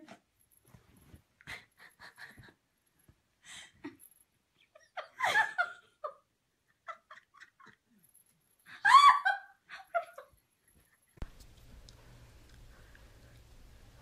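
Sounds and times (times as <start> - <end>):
person giggling: 3.8 - 8.2.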